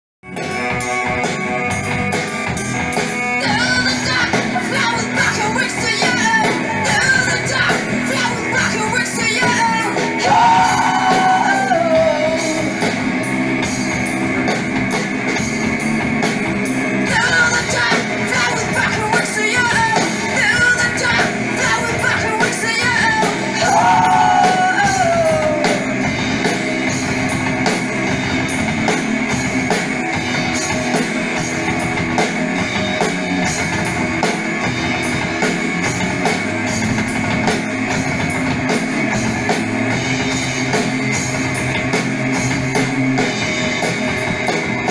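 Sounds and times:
rock band playing: 0.2s - 44.9s
woman singing: 3.4s - 12.5s, 17.1s - 25.8s.

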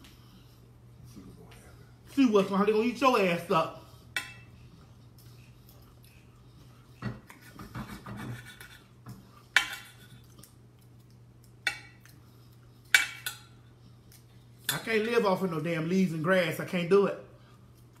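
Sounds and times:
low steady hum: 0.0s - 18.0s
cutlery clinking on a dish: 9.6s - 10.3s.

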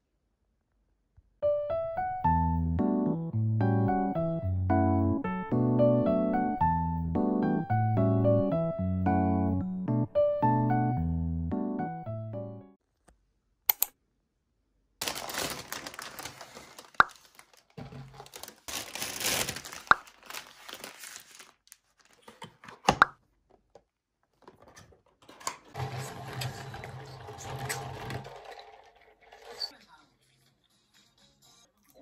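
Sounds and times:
sharp clicks: 13.7s - 14.0s
plastic bags crinkling: 15.0s - 22.8s.

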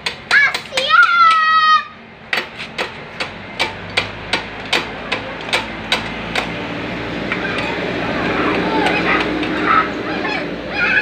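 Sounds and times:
metal tool tapping on engine: 2.3s - 6.6s.

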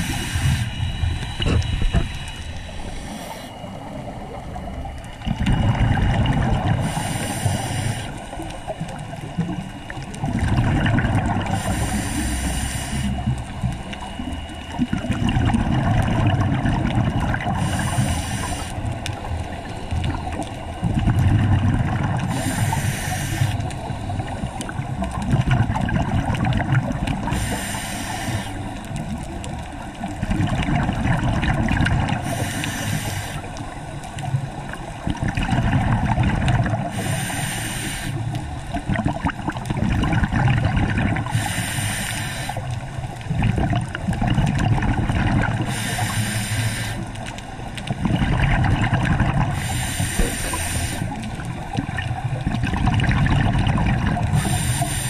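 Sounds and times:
regulator hissing inhale: 0.0s - 4.6s, 6.8s - 9.0s, 11.5s - 14.8s, 17.5s - 20.7s, 22.2s - 24.8s, 27.2s - 28.9s, 32.2s - 34.1s, 36.8s - 38.4s, 41.2s - 42.9s, 45.6s - 47.2s, 49.5s - 51.5s, 54.3s - 55.0s
exhaled bubbles rumbling: 0.0s - 37.6s, 38.2s - 55.0s.

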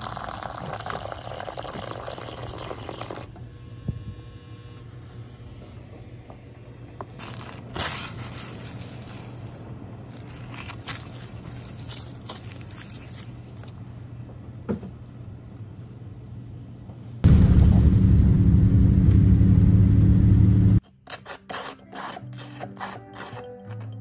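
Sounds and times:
machine running with loud hum: 3.3s - 7.6s, 17.2s - 20.8s.

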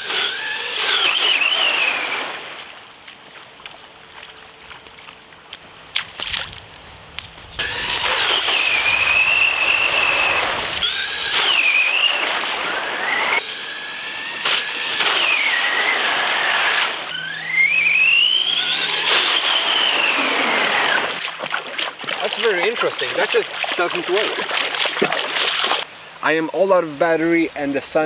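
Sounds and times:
electric motor whining: 0.0s - 2.4s, 7.6s - 21.2s.

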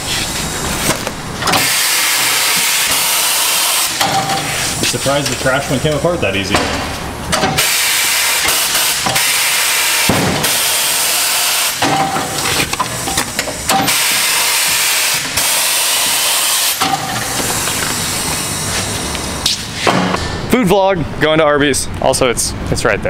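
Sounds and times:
compressed air hissing bursts: 1.5s - 5.0s, 7.6s - 20.2s.

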